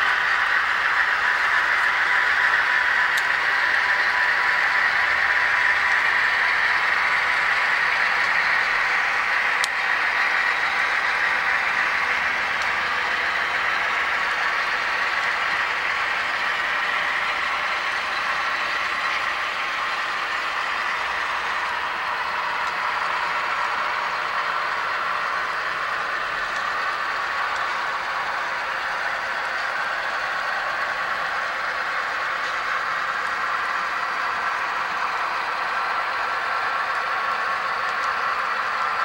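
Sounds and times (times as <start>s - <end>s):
model train wheels rolling on rails: 0.0s - 39.0s.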